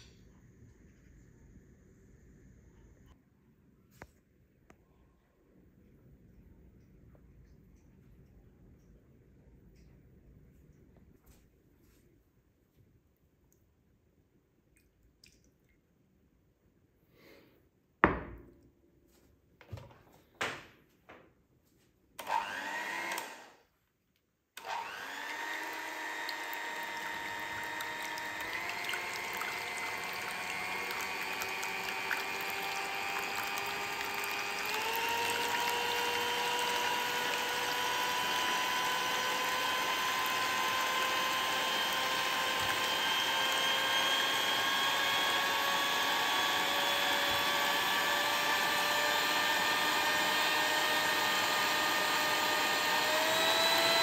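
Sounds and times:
electric mixer motor whine: 22.2 - 23.6, 24.6 - 54.0.

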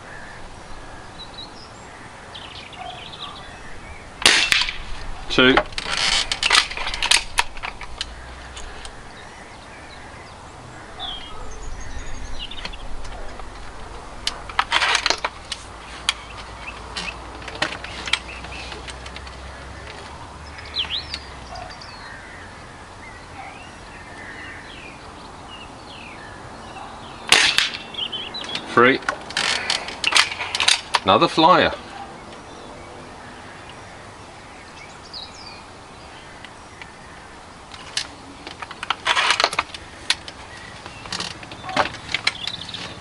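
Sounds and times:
birds chirping: 0.0 - 43.0
air rifle shot crack: 4.2 - 5.1, 27.3 - 27.9
metallic clicks of air rifle: 27.3 - 31.1.

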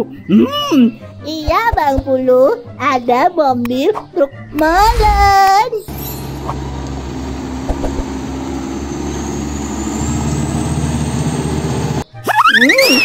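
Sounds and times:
truck diesel engine running: 5.9 - 12.1.

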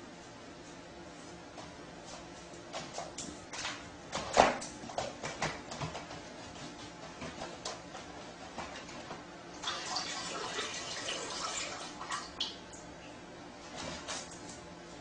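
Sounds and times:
liquid splashing into toilet water: 9.6 - 12.8.

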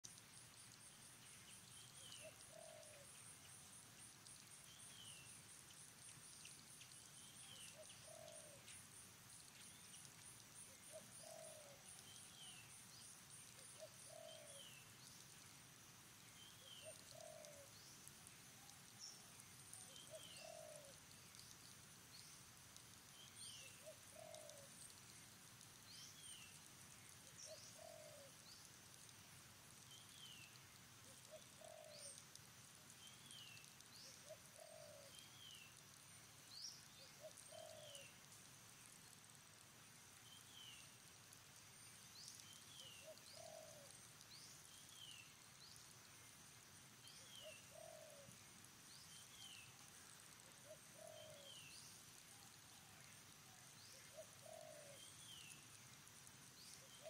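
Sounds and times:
faint animal calls: 2.0 - 3.8.

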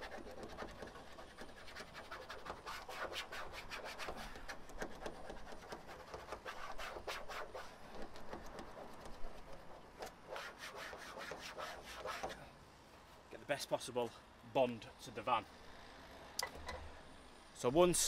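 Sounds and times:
hand tool scraping metal plate: 0.0 - 12.4.

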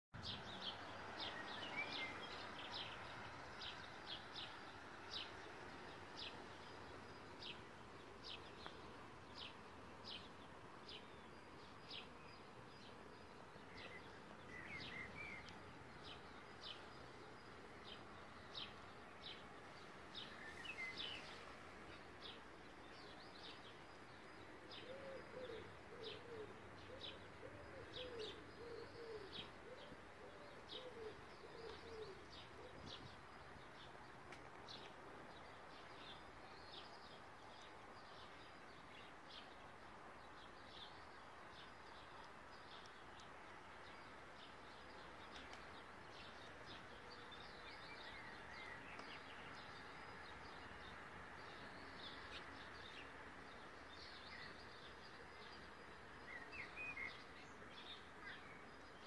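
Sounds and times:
pigeon cooing: 24.8 - 32.8.

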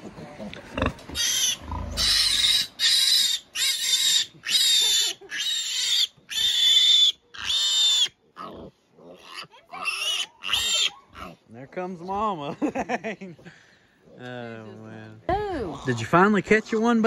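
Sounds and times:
piglet squealing: 1.2 - 8.5, 9.1 - 11.4, 15.6 - 16.1.

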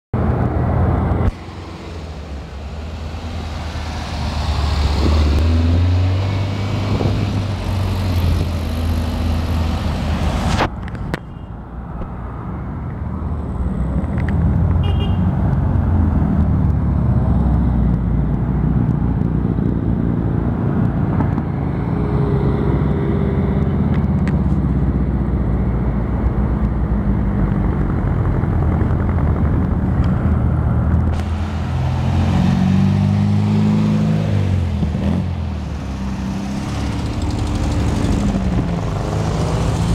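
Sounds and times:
cars rolling past at low speed: 15.4 - 39.9.

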